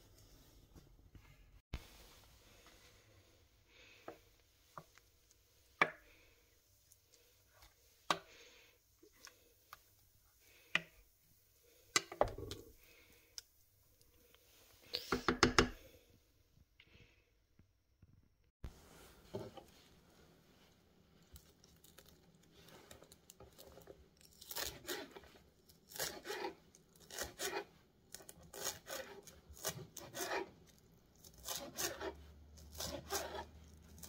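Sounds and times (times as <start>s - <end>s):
wooden spoon stirring thick sauce: 18.9s - 34.0s.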